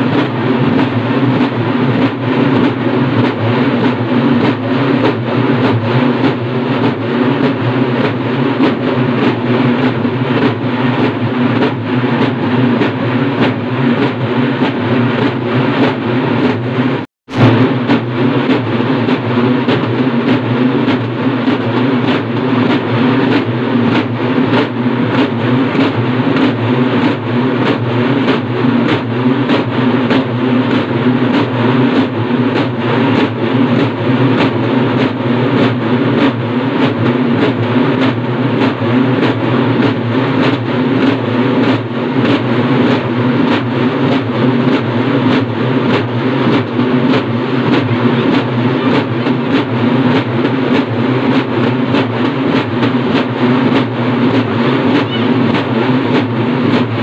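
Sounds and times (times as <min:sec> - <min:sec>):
drums beaten with sticks: 0:00.0 - 0:57.0.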